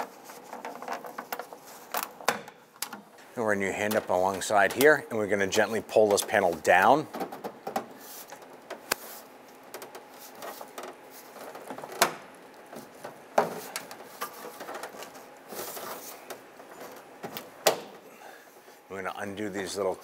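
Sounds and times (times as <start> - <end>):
plastic panel scraping and rustling: 0.0 - 3.1, 5.6 - 18.0.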